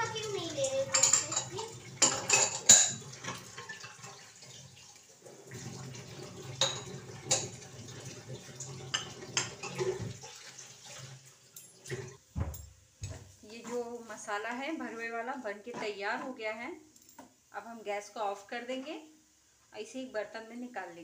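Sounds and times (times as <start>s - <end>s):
tap water running into sink: 0.0s - 13.3s
steel utensils clinking: 0.5s - 3.7s, 6.6s - 7.5s.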